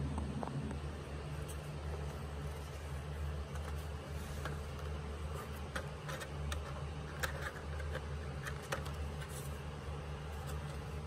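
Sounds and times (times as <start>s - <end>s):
low hum: 0.0s - 4.2s.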